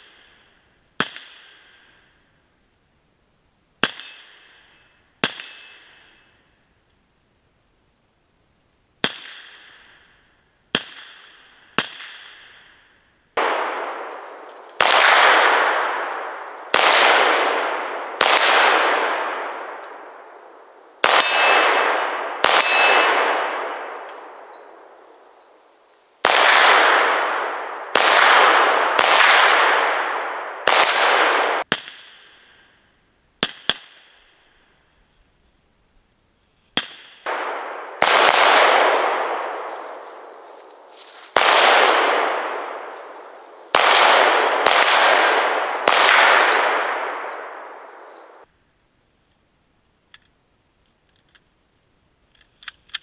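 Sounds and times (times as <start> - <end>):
rifle shots echoing: 13.4 - 25.5, 26.2 - 32.3, 36.8 - 48.5
metallic ringing clang: 18.4 - 19.3, 21.1 - 24.8.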